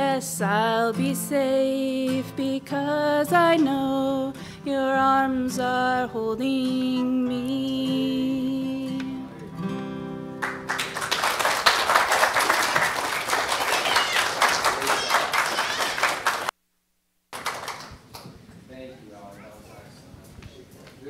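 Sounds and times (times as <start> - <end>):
acoustic guitar chord ringing: 6.7 - 10.9
congregation applauding: 10.4 - 16.5, 17.3 - 18.2.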